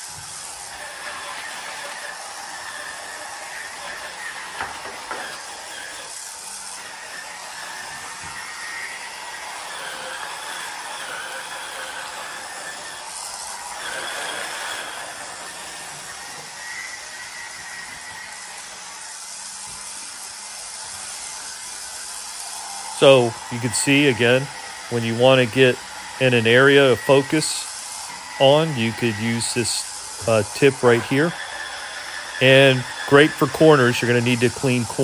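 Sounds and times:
rotary brush scrubbing tile: 0.0 - 35.0.

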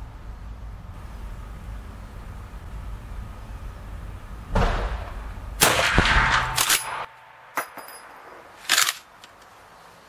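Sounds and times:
rifle shots ringing indoors: 4.6 - 7.6
rifle lever metallic clicks: 8.7 - 9.5.

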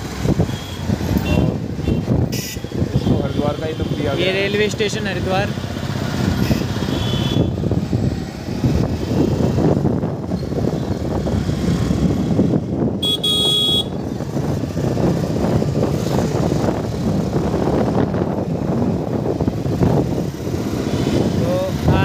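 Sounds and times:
road traffic rumble: 0.0 - 22.0
vehicle horn honk: 0.5 - 3.9, 6.4 - 7.5, 13.0 - 14.0.

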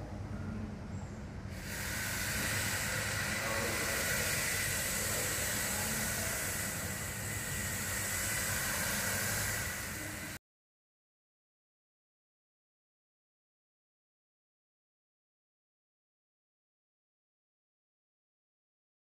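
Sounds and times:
rushing hissing water: 1.5 - 10.4.

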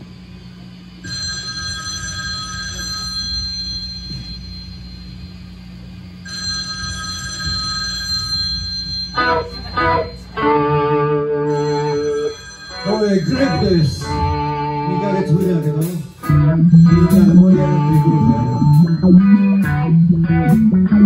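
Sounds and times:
amplifier hum: 0.0 - 21.0
electric guitar chiming notes: 8.6 - 21.0.

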